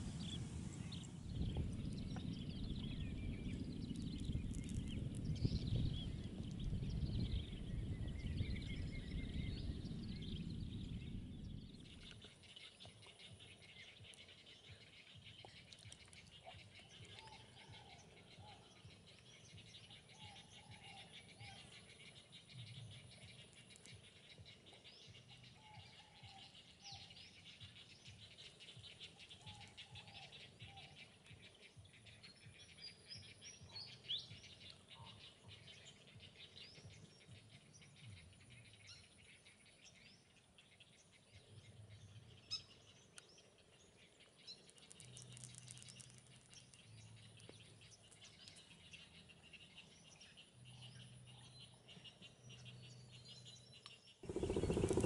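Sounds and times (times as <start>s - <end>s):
chorus of bird calls: 46.6s - 55.0s.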